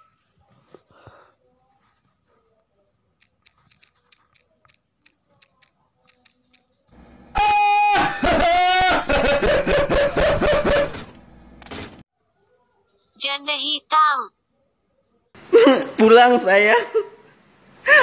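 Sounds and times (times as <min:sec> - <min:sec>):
phone keyboard key clicks: 0:03.2 - 0:06.6
man laughing loudly: 0:07.9 - 0:11.0, 0:15.5 - 0:16.0.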